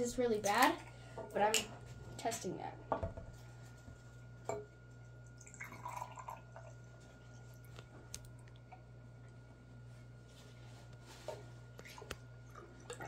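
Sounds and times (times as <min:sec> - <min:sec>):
drink pouring into glass: 0:05.3 - 0:06.8.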